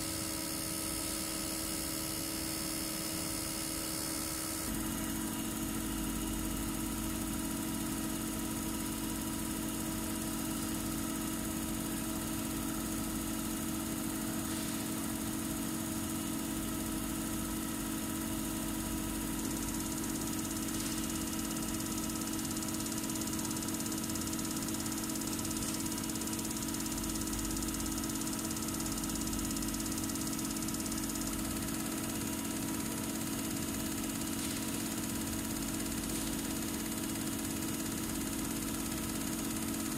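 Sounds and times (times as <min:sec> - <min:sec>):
test bench mechanical hum: 0:00.0 - 0:39.9.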